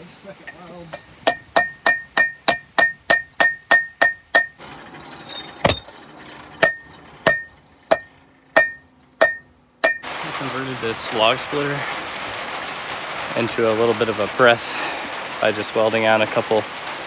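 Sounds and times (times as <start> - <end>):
hammer striking metal on anvil: 0.9 - 4.6, 6.6 - 10.1.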